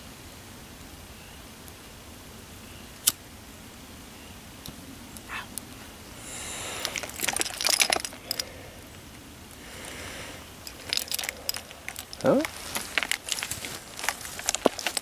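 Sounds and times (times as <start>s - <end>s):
metal gear scraping and clinking: 6.9s - 8.5s, 10.7s - 15.0s.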